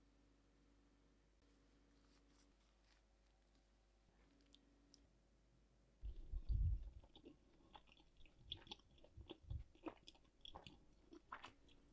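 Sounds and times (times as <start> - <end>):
wet eating clicks and smacks: 6.1 - 11.9.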